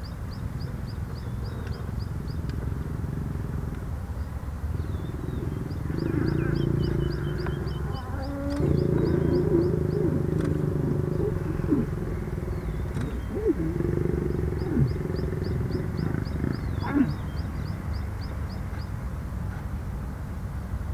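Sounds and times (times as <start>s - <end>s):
bird chirping: 0.0s - 2.9s, 4.1s - 19.0s
lions growling and snarling: 1.2s - 3.9s, 4.7s - 17.5s.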